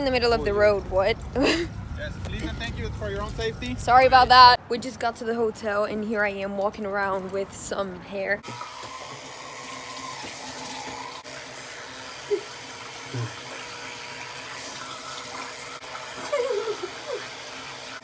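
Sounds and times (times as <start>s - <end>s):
electric toothbrush buzzing: 8.4s - 18.0s
murmured sounds: 13.1s - 13.4s.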